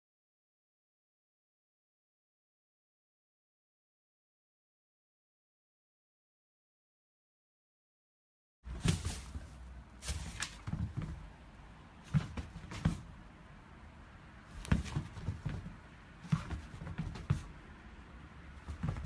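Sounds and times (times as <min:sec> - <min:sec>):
dog paws tapping on hard floor: 0:08.7 - 0:11.2, 0:12.1 - 0:13.1, 0:14.6 - 0:17.6, 0:18.6 - 0:19.0.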